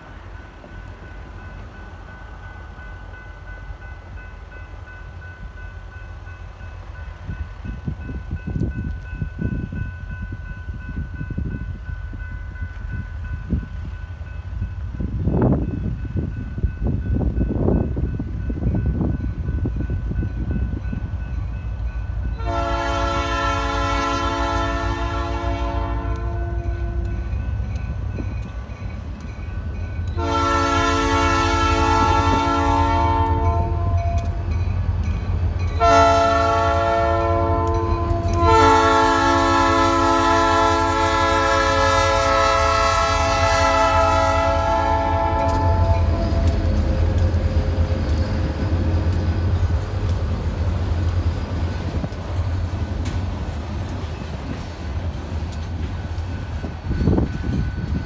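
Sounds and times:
locomotive air horn blasts: 0:22.4 - 0:27.1, 0:30.2 - 0:34.2, 0:35.8 - 0:46.8.

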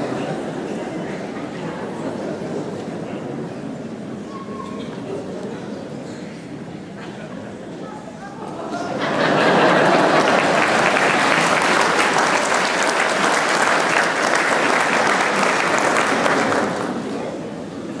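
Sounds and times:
audience clapping: 0:09.4 - 0:17.3.

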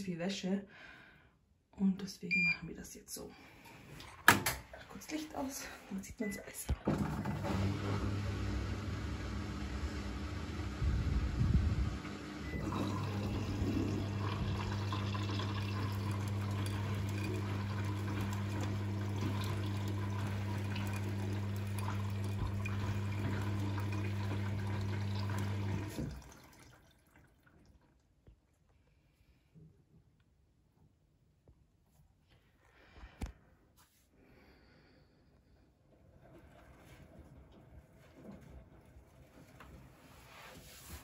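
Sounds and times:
washing machine hum: 0:03.6 - 0:28.5, 0:35.4 - 0:41.0
water rushing into washing machine: 0:06.8 - 0:28.1, 0:35.8 - 0:41.0.

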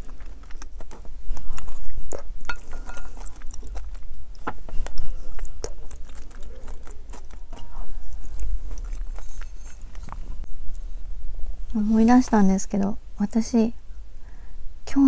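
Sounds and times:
wet chewing mouth sounds: 0:00.0 - 0:10.9.

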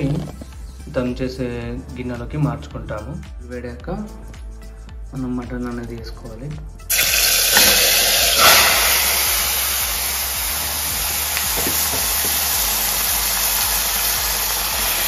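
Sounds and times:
meat sizzling in hot oil: 0:06.9 - 0:15.0.

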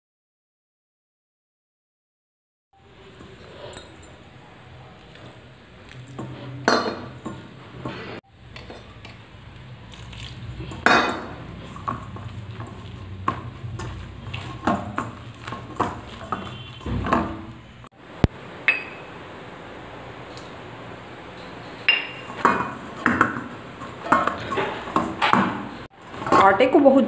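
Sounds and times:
bowl clinking: 0:03.4 - 0:04.2, 0:18.6 - 0:19.2, 0:21.4 - 0:23.4
hand kneading dough in metal bowl: 0:04.8 - 0:17.8.

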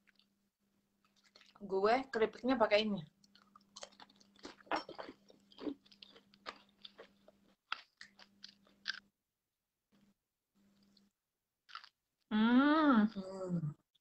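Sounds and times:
chewing crunchy crackers: 0:01.0 - 0:01.6, 0:03.2 - 0:09.1, 0:11.7 - 0:12.0.

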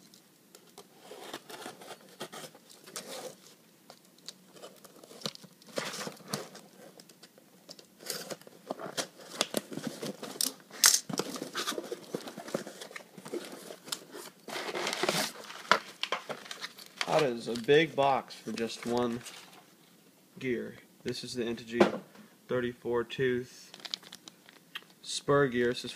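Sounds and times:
cardboard and paper crinkling: 0:00.7 - 0:03.6, 0:04.2 - 0:17.8, 0:18.4 - 0:19.7, 0:23.7 - 0:24.6
packing tape tearing: 0:07.8 - 0:17.2.

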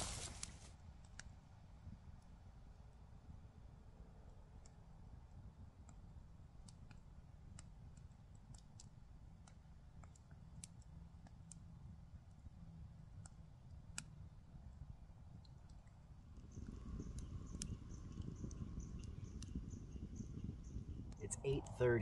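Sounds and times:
campfire crackling: 0:00.0 - 0:01.5, 0:04.2 - 0:22.0
low rumble: 0:16.2 - 0:22.0.

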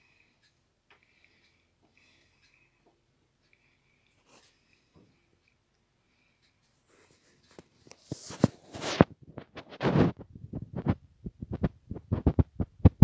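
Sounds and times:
rubbing rustles: 0:07.0 - 0:12.7.

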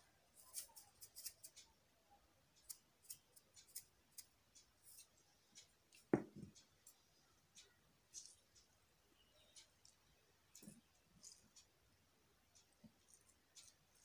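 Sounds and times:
dull knock: 0:06.1 - 0:06.5.

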